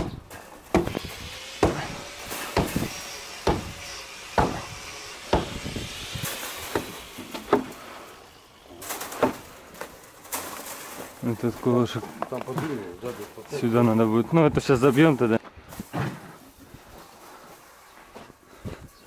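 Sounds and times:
hammer blows on wooden stake: 0.0s - 7.8s.

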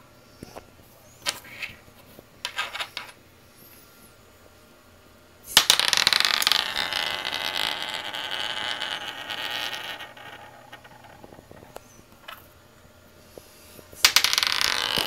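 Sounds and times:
metal screw spinning on surface: 5.5s - 12.5s, 14.0s - 15.0s.

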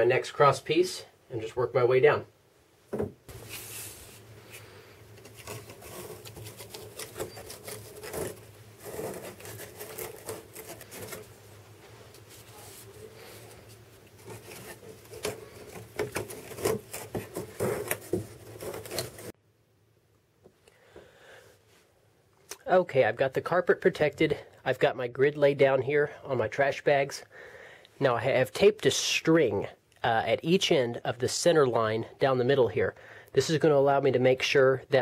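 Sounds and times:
cardboard scraping and tapping: 5.2s - 11.3s, 14.2s - 19.3s.

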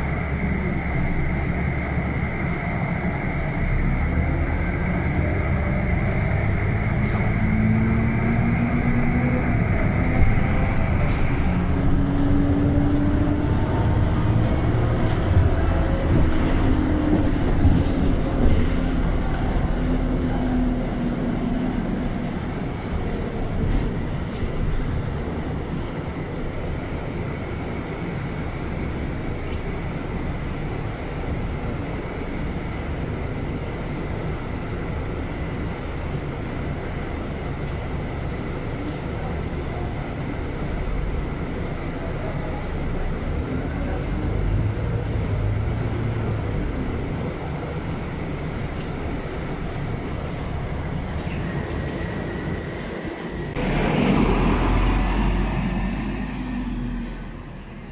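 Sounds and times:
bus engine running: 0.0s - 57.9s
road noise: 0.0s - 57.9s.

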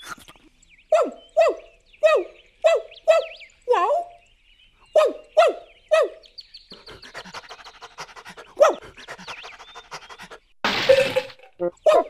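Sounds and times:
cartoon dog yelping barks: 0.9s - 3.4s, 11.6s - 12.0s.

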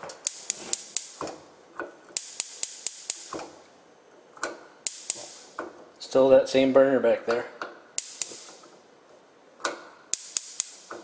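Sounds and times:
spark igniter clicking: 0.1s - 1.4s, 2.2s - 3.5s, 4.8s - 5.6s, 8.0s - 8.6s, 10.1s - 11.0s.

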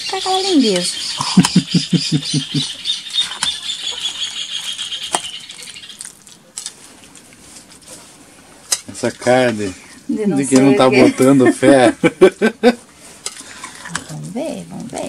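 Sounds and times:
spoon stirring in glass bowl: 13.0s - 15.0s.

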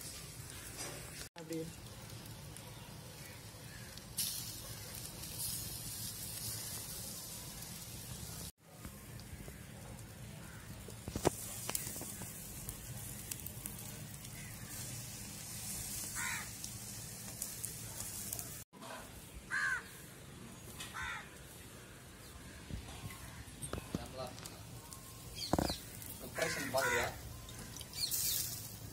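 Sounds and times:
fish sizzling on a grill: 0.0s - 18.6s, 23.2s - 28.9s
fire crackling: 0.0s - 28.9s
bird calling: 24.9s - 28.6s.

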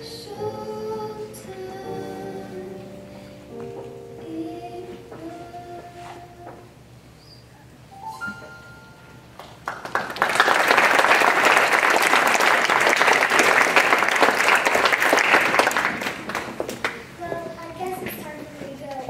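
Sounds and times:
audience applauding: 9.4s - 17.1s.

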